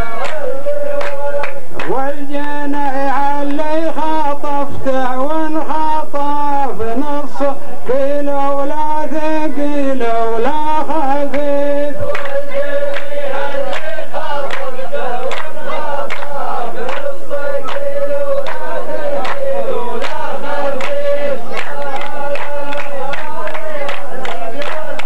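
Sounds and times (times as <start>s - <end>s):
hand claps: 0.0s - 2.0s, 3.4s - 3.7s, 10.6s - 25.0s
men chanting in unison: 0.0s - 25.0s.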